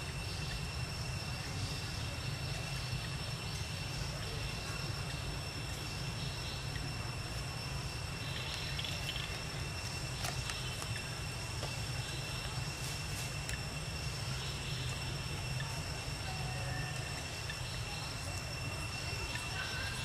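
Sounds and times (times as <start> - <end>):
insects chirring: 0.0 - 20.0
low outdoor rumble: 0.0 - 20.0
faint clicks: 8.4 - 11.8.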